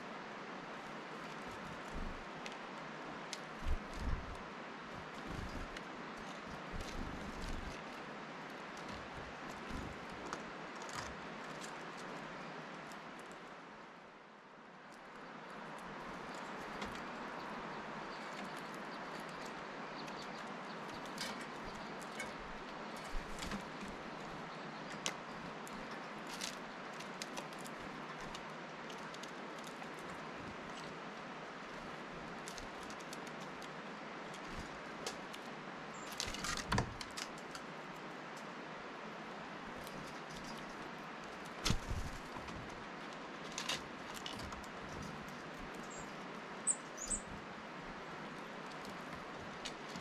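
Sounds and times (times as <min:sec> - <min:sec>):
outdoor background hiss: 0:00.0 - 0:50.0
bird pecking at seeds: 0:00.7 - 0:13.6, 0:14.8 - 0:50.0
wingbeats and knocks: 0:41.6 - 0:42.8.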